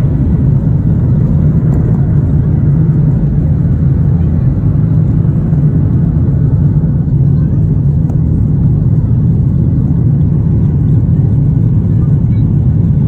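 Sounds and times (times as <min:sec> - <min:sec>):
airplane cabin engine rumble: 0:00.0 - 0:13.0.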